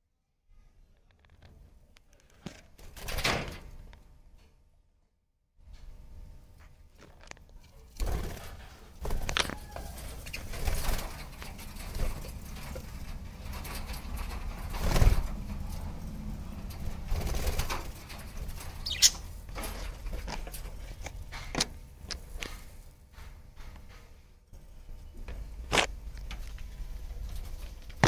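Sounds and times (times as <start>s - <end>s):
birds flapping wings: 8.0s - 20.5s
high bird chirp: 18.8s - 19.3s.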